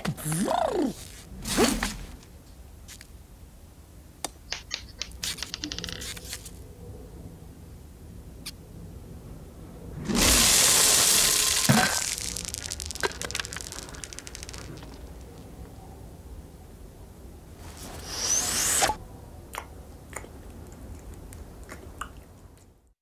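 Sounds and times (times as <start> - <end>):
rush of pouring berries: 10.0 - 15.2
patter of scattering berries: 10.1 - 15.5.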